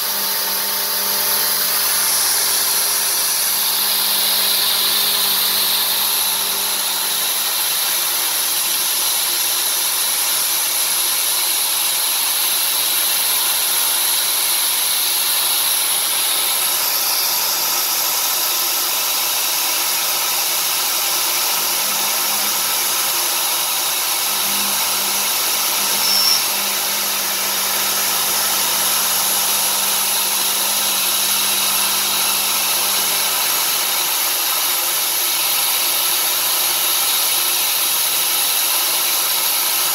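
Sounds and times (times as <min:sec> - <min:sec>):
end mill cutting metal whine: 0:00.0 - 0:38.7
brief squeak: 0:26.0 - 0:26.5.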